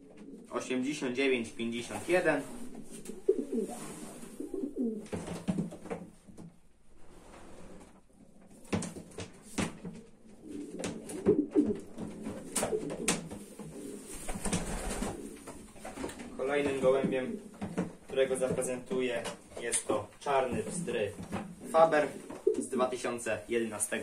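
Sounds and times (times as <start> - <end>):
pigeons cooing: 0.0 - 0.7, 2.4 - 5.1, 9.9 - 16.4.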